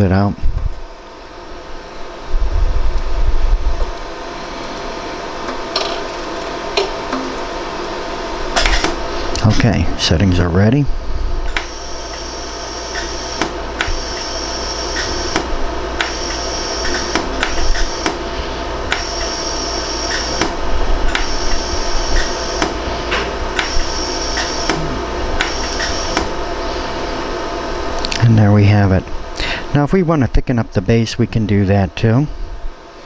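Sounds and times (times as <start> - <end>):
machine hum: 0.0 - 33.0
laser welder clicks: 8.6 - 9.5, 11.5 - 12.3, 12.9 - 18.2, 18.9 - 19.4, 20.0 - 22.8, 23.6 - 24.8, 25.4 - 26.3.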